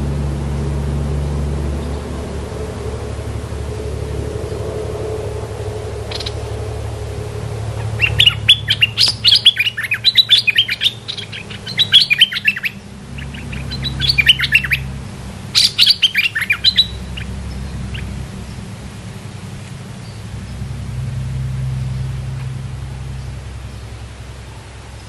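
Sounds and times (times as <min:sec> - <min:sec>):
songbirds chattering high notes: 0:05.4 - 0:19.3.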